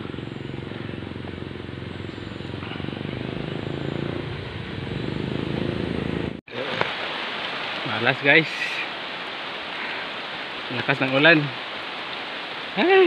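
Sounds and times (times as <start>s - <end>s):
motorcycle engine running: 0.0s - 6.4s.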